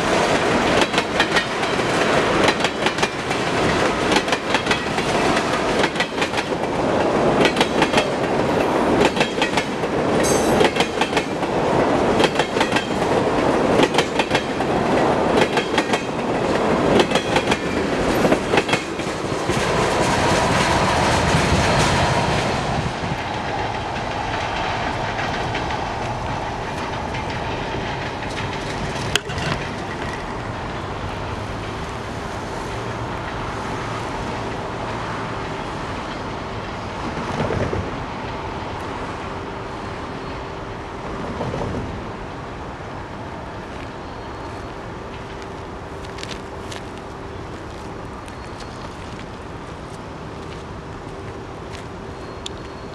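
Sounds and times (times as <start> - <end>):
wheels clicking over rail joints: 0.0 - 32.0
freight train rolling past: 0.0 - 52.9.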